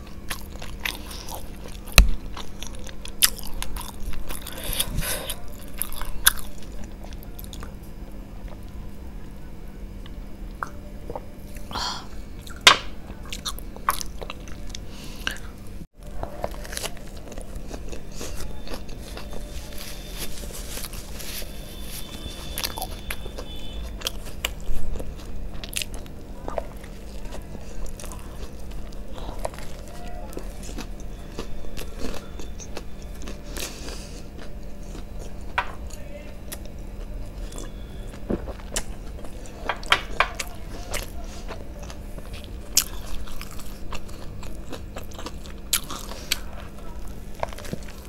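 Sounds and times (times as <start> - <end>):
chewing and crunchy bites: 0.0 - 8.8, 12.4 - 48.0.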